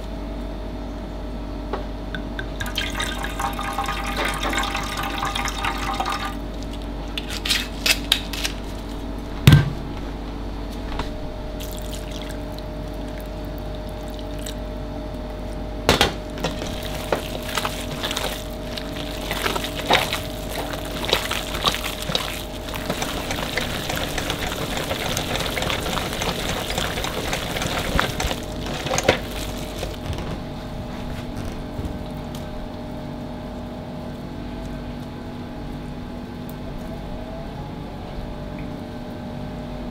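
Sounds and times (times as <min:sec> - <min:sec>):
steady background hum: 0:00.0 - 0:39.9
wine pouring into metal tray: 0:02.6 - 0:06.5, 0:16.4 - 0:30.0
hands kneading mixture in metal bowl: 0:16.2 - 0:32.6.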